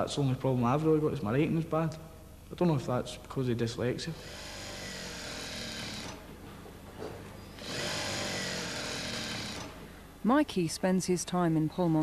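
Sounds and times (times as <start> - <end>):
sewing machine running: 4.2 - 6.2, 7.6 - 9.8.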